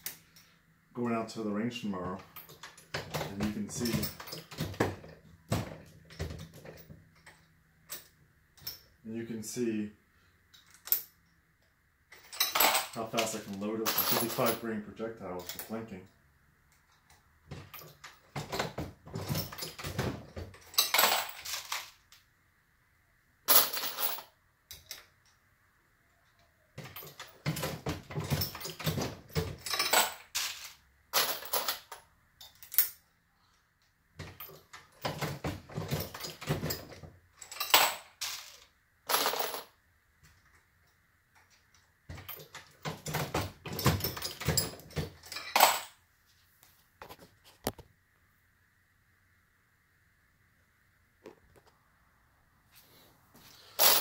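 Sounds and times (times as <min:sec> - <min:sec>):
brass cases clinking: 0:02.3 - 0:06.9, 0:12.1 - 0:14.6, 0:17.6 - 0:21.9, 0:26.8 - 0:33.0, 0:34.2 - 0:39.7, 0:42.2 - 0:46.0, 0:53.7 - 0:54.0.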